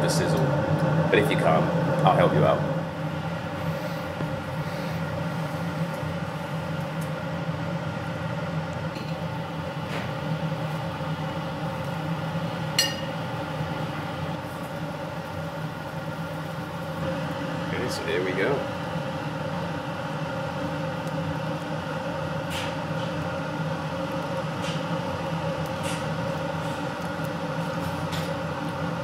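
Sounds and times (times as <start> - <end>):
steady mechanical hum: 0.0 - 29.0
meat sizzling on grill: 11.6 - 29.0.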